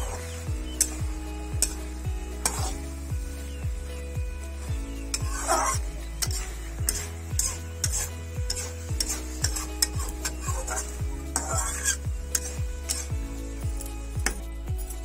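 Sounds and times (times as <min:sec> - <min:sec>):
metal spatula scraping a pan: 0:00.0 - 0:01.0, 0:01.6 - 0:02.9, 0:04.5 - 0:13.1
background music drum beat: 0:00.0 - 0:15.0.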